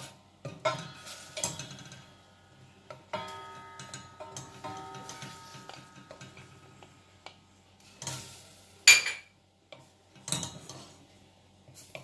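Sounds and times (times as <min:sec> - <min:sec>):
spatula scraping saucepan: 0:09.7 - 0:12.0.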